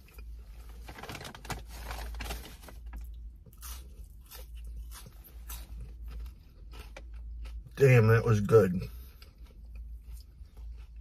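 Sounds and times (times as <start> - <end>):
crunching and wet chewing: 2.8 - 11.0.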